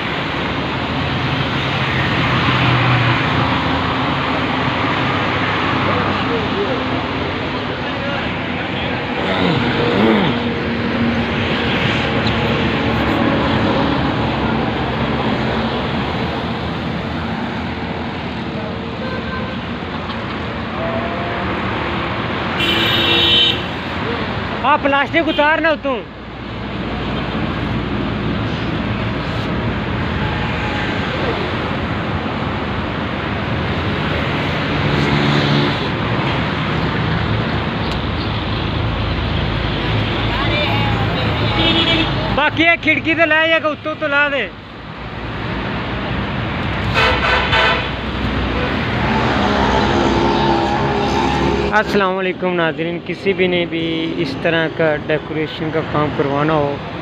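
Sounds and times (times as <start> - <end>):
traffic on busy road: 0.0 - 57.0
passing vehicle engine hum: 47.8 - 52.2.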